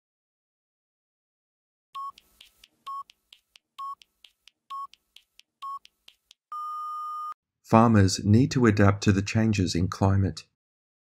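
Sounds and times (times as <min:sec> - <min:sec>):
short timer beeps: 0:02.0 - 0:03.2, 0:03.8 - 0:04.1, 0:04.7 - 0:05.0, 0:05.6 - 0:07.4.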